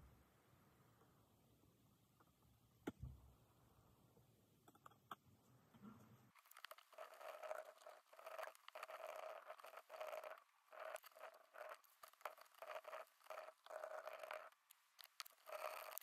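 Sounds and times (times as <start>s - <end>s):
faint scraping and crackling: 4.6s - 16.0s.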